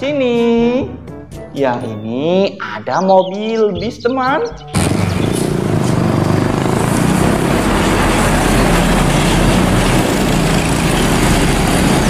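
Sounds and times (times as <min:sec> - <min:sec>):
bus driving by: 0:04.8 - 0:12.0.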